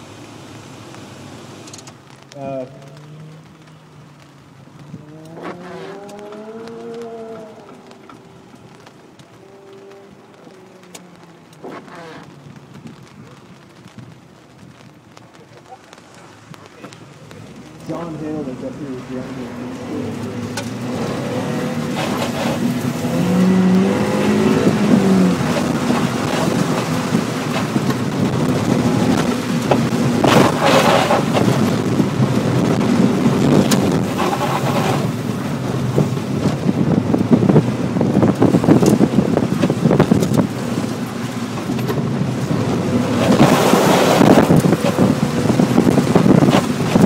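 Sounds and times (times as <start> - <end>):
car engine running under load: 0.0 - 47.0
rushing water spray: 15.3 - 37.2, 37.9 - 47.0.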